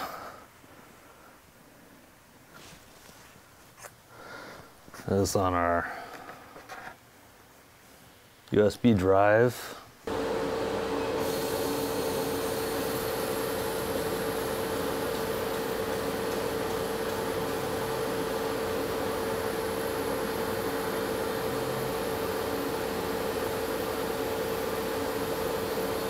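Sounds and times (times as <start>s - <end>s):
laser cutter hiss and hum: 10.1s - 26.0s.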